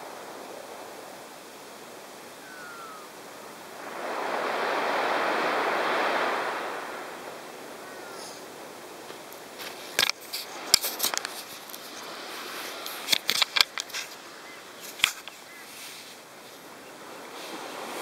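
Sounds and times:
background hiss: 0.0s - 18.0s.

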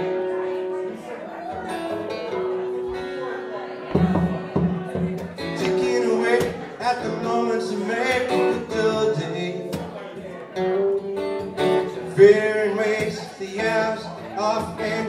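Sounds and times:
acoustic guitar: 0.0s - 15.0s
man singing: 4.0s - 10.8s, 11.6s - 15.0s.

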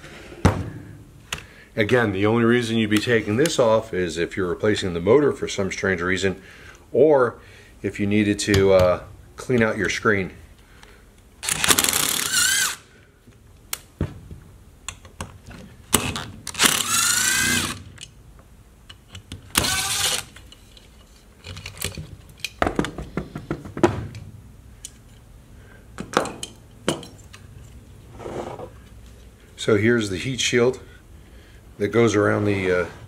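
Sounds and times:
impact driver whine: 11.4s - 12.8s, 16.0s - 17.9s, 19.6s - 20.3s.

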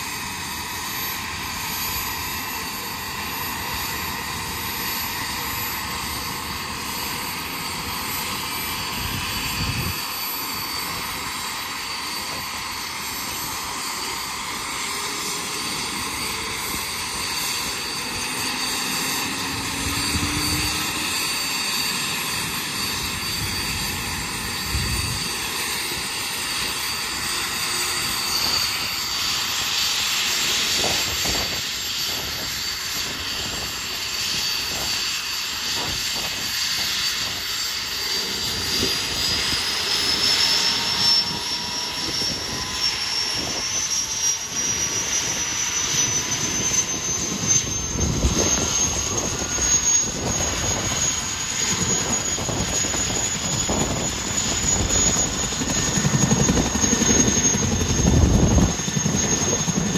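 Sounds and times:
helicopter turbine whine: 0.0s - 59.9s.

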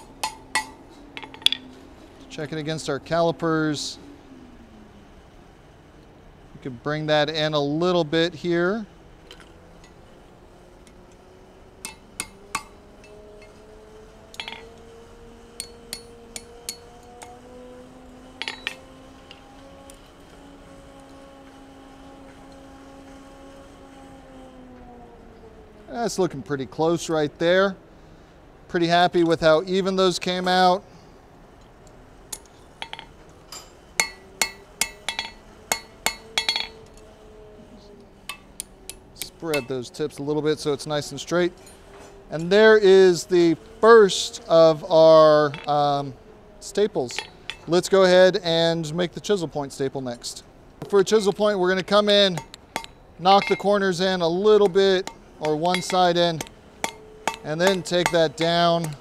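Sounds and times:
hammer tapping steel on anvil: 0.0s - 1.6s, 11.8s - 13.5s, 14.3s - 14.8s, 15.6s - 17.4s, 18.4s - 19.4s, 32.3s - 37.1s, 38.2s - 39.8s, 52.3s - 53.8s, 54.6s - 59.0s.

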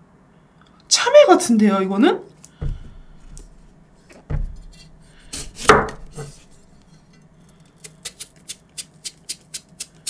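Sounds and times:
knife cutting fruit: 2.6s - 10.0s.

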